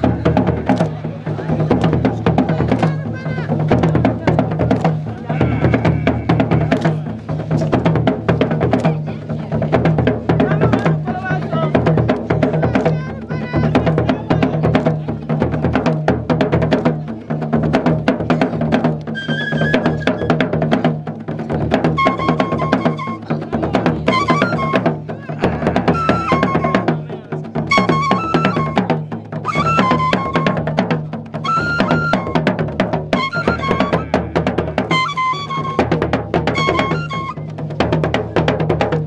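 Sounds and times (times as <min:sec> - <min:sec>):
drums beaten fast: 0:00.0 - 0:39.0
high melody: 0:33.1 - 0:34.1, 0:34.8 - 0:37.5.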